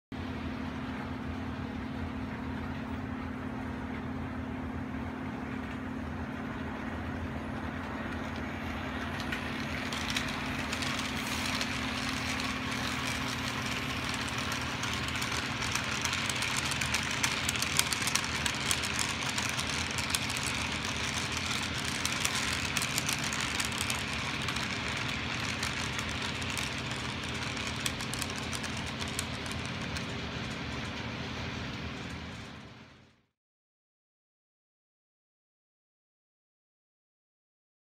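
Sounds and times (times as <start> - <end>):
quick track clicks: 8.1 - 32.6
model train wheels rattling: 8.2 - 32.7.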